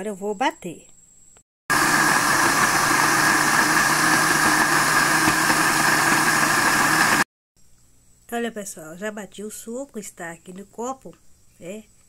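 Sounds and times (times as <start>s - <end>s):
blender whirring: 1.7s - 7.3s.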